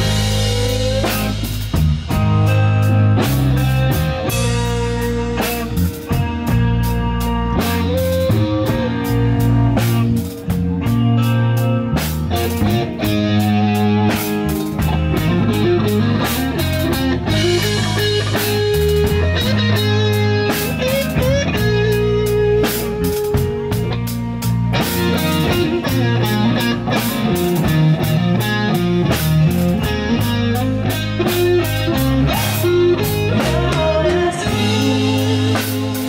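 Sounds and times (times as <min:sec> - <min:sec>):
drum kit beat: 0:00.0 - 0:36.0
electric guitar: 0:00.0 - 0:36.0.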